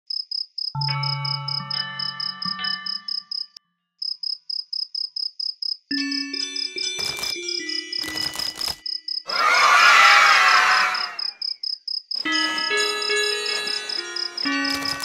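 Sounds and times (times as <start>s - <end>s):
crickets chirping: 0.1s - 0.7s, 1.5s - 5.9s, 7.0s - 9.3s, 10.9s - 15.0s
held musical tones: 12.2s - 15.0s.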